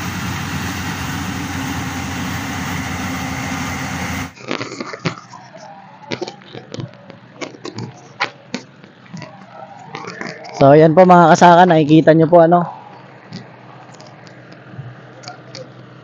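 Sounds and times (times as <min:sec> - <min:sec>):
combine harvester running: 0:00.0 - 0:04.6.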